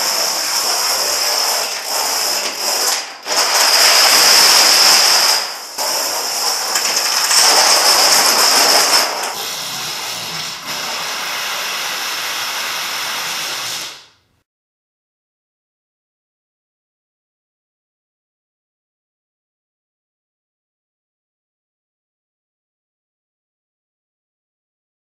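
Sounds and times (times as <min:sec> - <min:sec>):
plastic dominoes clattering: 0:05.9 - 0:09.4.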